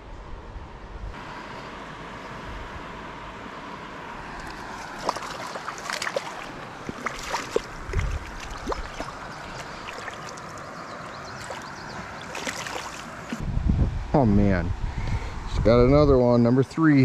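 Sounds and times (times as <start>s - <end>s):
stream running: 1.2s - 13.5s.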